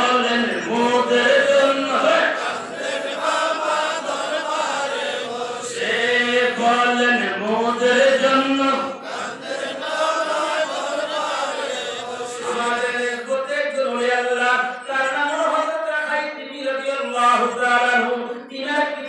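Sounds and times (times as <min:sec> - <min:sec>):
man chanting into a microphone: 0:00.0 - 0:02.6, 0:05.5 - 0:09.2, 0:12.1 - 0:19.0.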